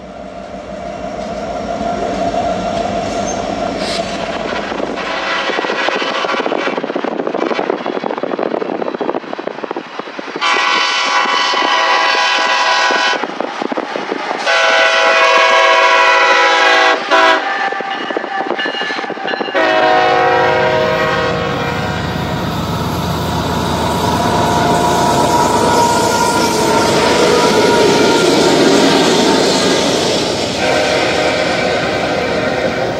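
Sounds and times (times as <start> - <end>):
steel wheels rolling on rail: 0.0 - 32.9
locomotive air horn blasts: 3.8 - 6.8, 10.4 - 13.3, 14.4 - 30.0, 30.6 - 32.9
diesel engine rumbling: 20.4 - 32.9.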